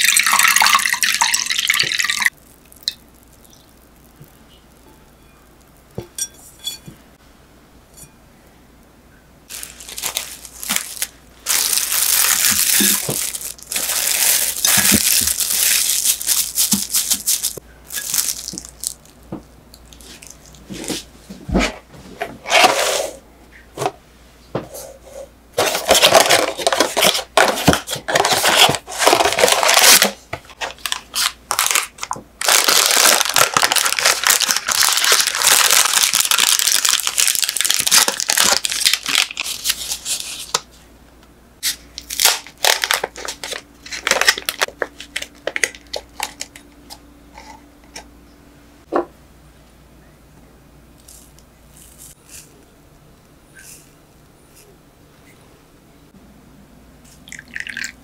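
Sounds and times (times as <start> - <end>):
coffee packet tearing open: 9.5 - 19.0, 28.1 - 40.6, 42.0 - 46.3
cling film crinkling and tearing: 9.5 - 19.2, 25.6 - 40.7, 41.6 - 46.6.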